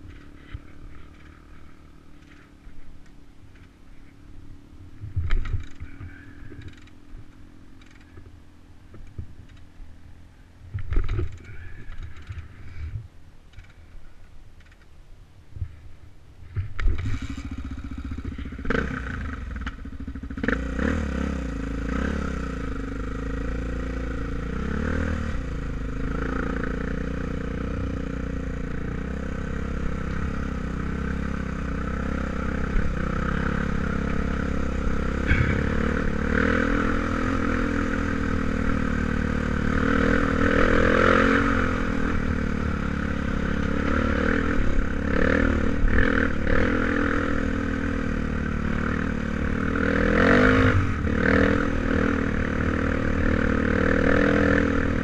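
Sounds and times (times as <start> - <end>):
dirt bike engine revving: 16.8 - 55.0.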